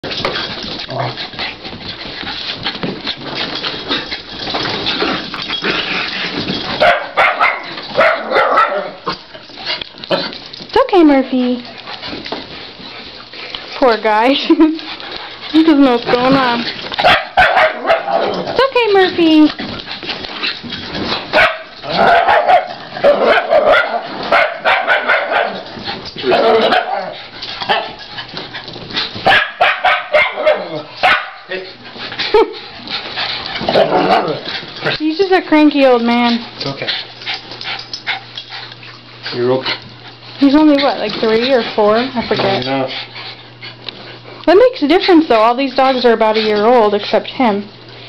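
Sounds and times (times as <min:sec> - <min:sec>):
dogs scuffling: 0:00.0 - 0:48.0
dogs barking: 0:06.8 - 0:09.3, 0:16.1 - 0:18.7, 0:21.3 - 0:28.1, 0:29.2 - 0:31.8.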